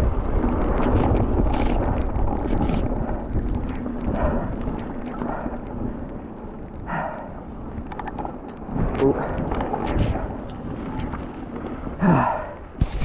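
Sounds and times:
wind buffeting microphone: 0.0s - 13.0s
bike clicks and rattles: 7.7s - 10.4s.

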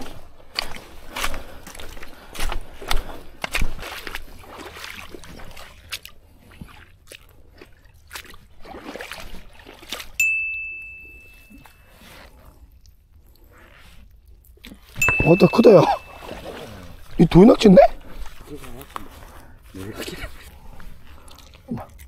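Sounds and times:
feet splashing through water: 0.0s - 12.3s, 14.7s - 22.0s
high bell-like ding: 10.2s - 11.9s, 15.0s - 16.6s.

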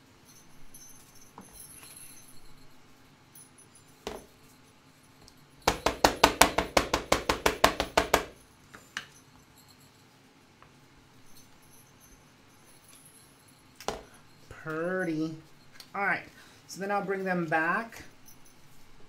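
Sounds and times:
ink pad tapping on stamp: 5.7s - 8.3s.

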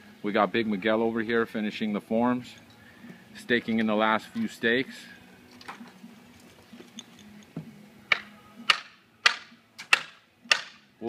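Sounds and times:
hammer striking stakes: 8.1s - 10.9s.

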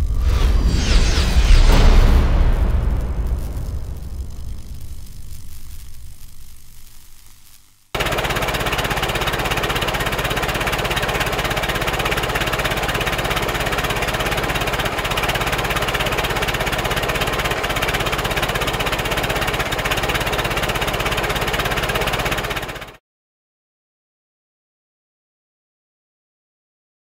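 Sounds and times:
car engine running: 2.8s - 23.0s
rapid exhaust beat: 8.0s - 22.7s.

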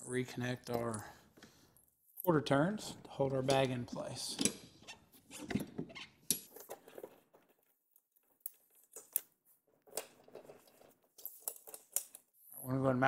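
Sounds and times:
small clicks and rustles: 6.2s - 12.6s.

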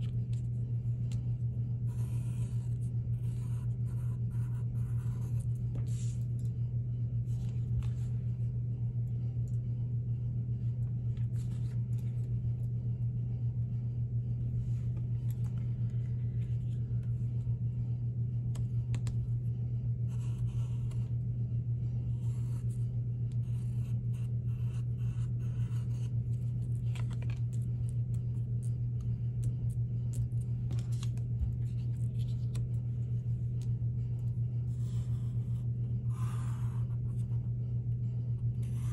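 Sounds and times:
steady low hum: 0.0s - 38.9s
pencil scratching on paper: 1.8s - 6.2s, 20.1s - 21.1s, 22.0s - 27.1s, 34.7s - 37.4s, 38.6s - 38.9s.

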